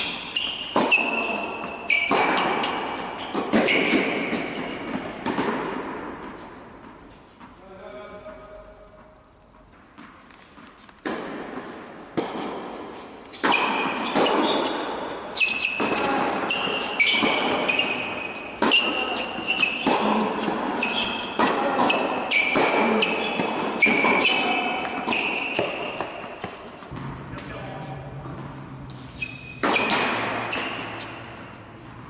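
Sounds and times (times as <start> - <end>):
shoe squeaks on court: 0.0 - 4.9, 13.2 - 26.9, 28.9 - 31.7
tennis ball hits and bounces: 0.0 - 7.5, 9.8 - 27.5, 28.2 - 32.0.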